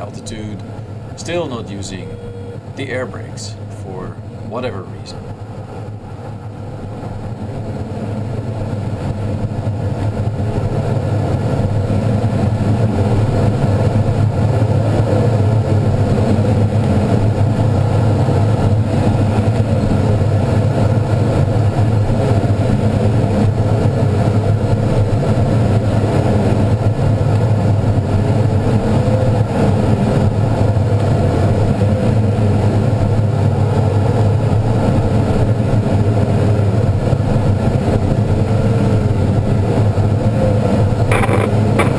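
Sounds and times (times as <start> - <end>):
air rushing around glider cockpit: 0.0 - 41.9
faint wavering tone: 1.9 - 2.6.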